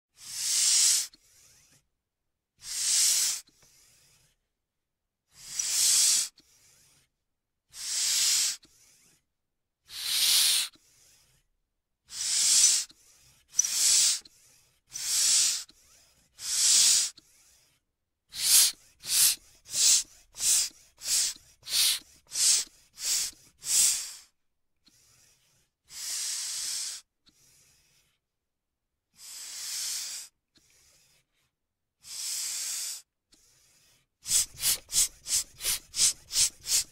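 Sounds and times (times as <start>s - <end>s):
bicycle pump hissing: 0.3s - 1.0s, 2.6s - 3.4s, 5.4s - 6.3s, 7.8s - 8.6s, 9.9s - 10.7s, 12.1s - 12.9s, 13.6s - 14.2s, 14.9s - 15.6s, 16.4s - 17.1s, 18.3s - 24.2s, 34.3s - 36.9s.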